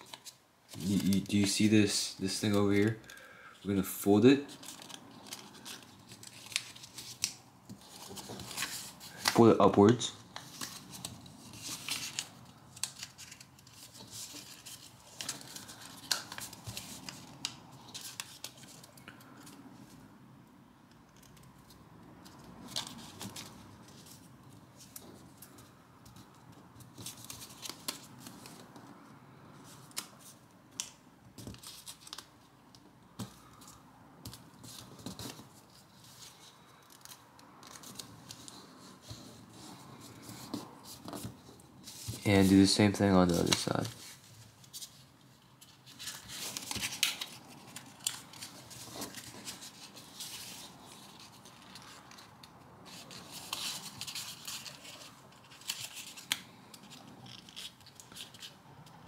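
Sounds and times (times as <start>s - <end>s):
paper rustling and crackling: 0.0s - 3.0s, 4.3s - 19.6s, 29.7s - 32.4s, 33.2s - 58.6s.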